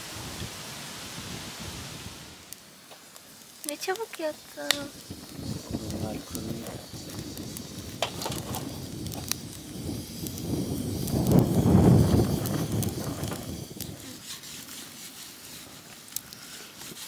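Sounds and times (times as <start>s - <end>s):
low rush of air: 0.0s - 2.6s, 4.9s - 14.3s
kindling crackling: 0.0s - 17.0s.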